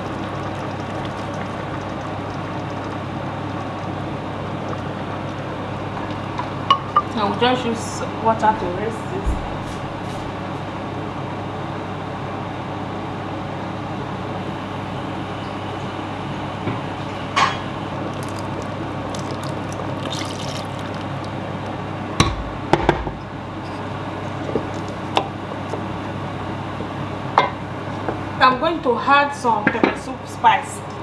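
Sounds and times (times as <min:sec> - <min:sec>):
water sloshing in a blender jug: 0:00.0 - 0:04.0, 0:18.0 - 0:21.8, 0:23.6 - 0:25.8
water pouring into a metal pot: 0:00.0 - 0:05.6, 0:18.0 - 0:21.5.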